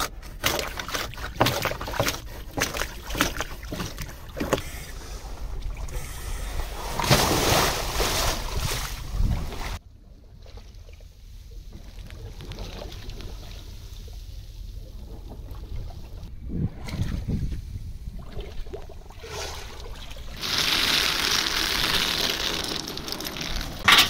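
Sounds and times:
wooden scraper scraping hull: 0:00.0 - 0:04.8
water sloshing: 0:00.0 - 0:17.4, 0:18.1 - 0:24.0
wind and water noise: 0:00.0 - 0:24.0.

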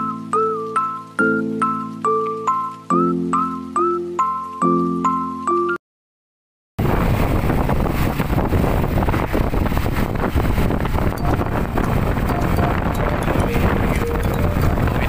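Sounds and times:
vehicle engine and road noise: 0:06.8 - 0:15.0
wind buffeting microphone: 0:06.8 - 0:15.0.

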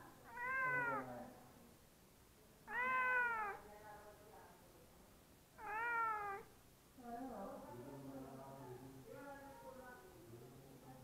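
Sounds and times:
cat meowing: 0:00.2 - 0:01.1, 0:02.6 - 0:03.6, 0:05.6 - 0:06.5.

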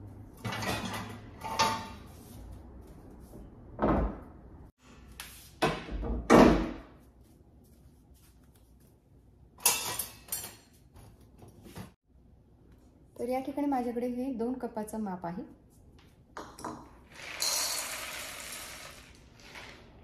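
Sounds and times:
knocks and bumps at kitchen counter: 0:03.8 - 0:04.4.

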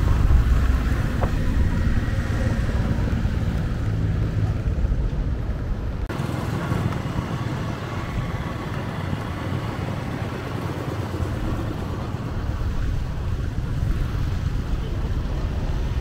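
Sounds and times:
road traffic passing: 0:00.0 - 0:16.0.

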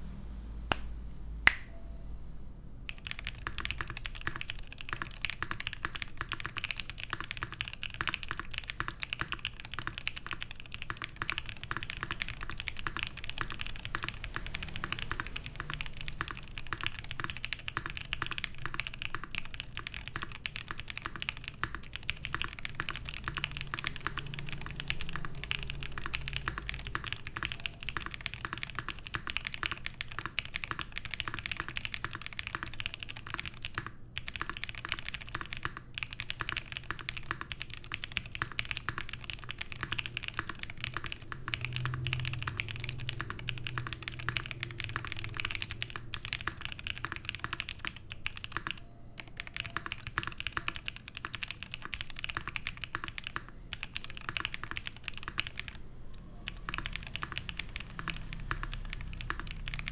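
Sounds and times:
mechanical keyboard typing: 0:02.8 - 0:59.9.

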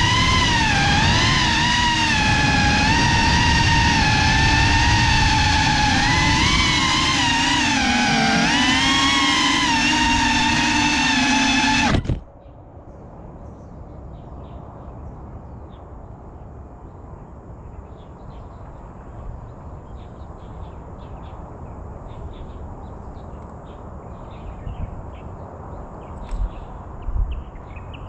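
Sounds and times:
low outdoor rush: 0:00.0 - 0:12.4.

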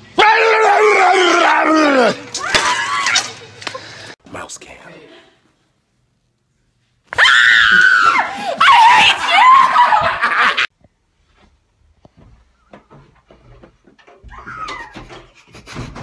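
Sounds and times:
person screaming in fright: 0:00.2 - 0:03.1, 0:07.2 - 0:10.2.

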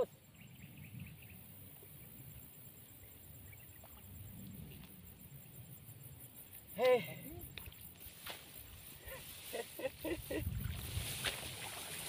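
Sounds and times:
wind rumbling on microphone: 0:03.5 - 0:06.1, 0:07.5 - 0:12.0.

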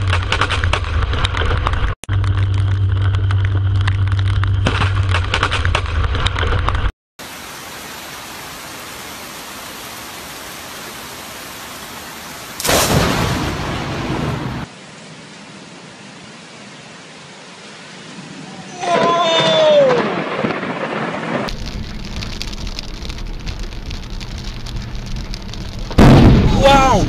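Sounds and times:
steady rain: 0:00.0 - 0:04.6, 0:06.8 - 0:27.0
loud thunderclap: 0:12.6 - 0:14.7, 0:19.4 - 0:23.2, 0:25.8 - 0:27.0
thunder rumbling: 0:12.6 - 0:14.7, 0:18.2 - 0:27.0.

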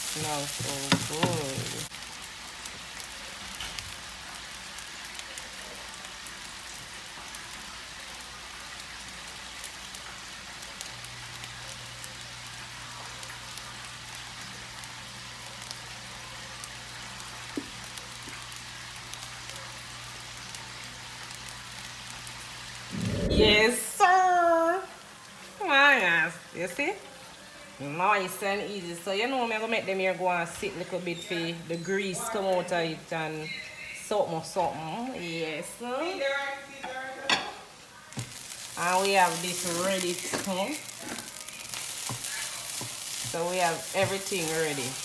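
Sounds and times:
rice sizzling in a frying pan: 0:00.0 - 0:45.0
wooden spoon stirring: 0:38.2 - 0:45.0.

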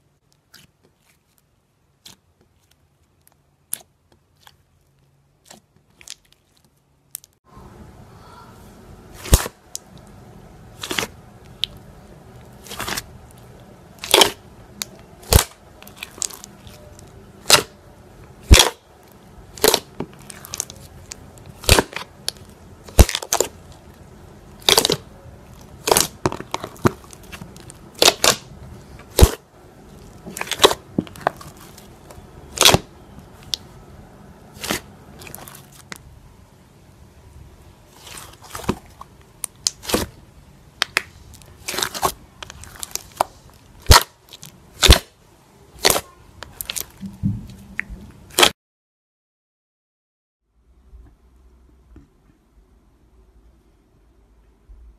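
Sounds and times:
slime crackling pops: 0:09.2 - 0:09.9, 0:14.0 - 0:16.8, 0:18.4 - 0:18.8, 0:19.5 - 0:23.6, 0:24.6 - 0:25.0, 0:25.7 - 0:28.5, 0:29.1 - 0:29.4, 0:30.3 - 0:31.7, 0:32.5 - 0:33.6, 0:39.4 - 0:40.1, 0:40.8 - 0:44.2, 0:44.8 - 0:45.1, 0:45.8 - 0:47.0.

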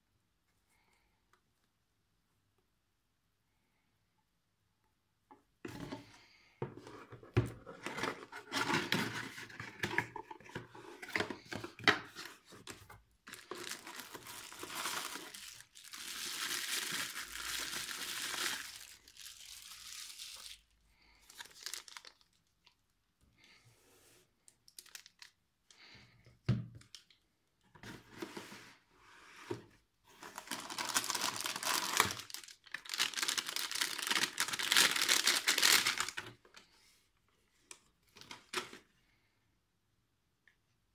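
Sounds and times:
plastic bags crinkling: 0:13.3 - 0:22.8, 0:24.6 - 0:25.4, 0:30.3 - 0:36.2.

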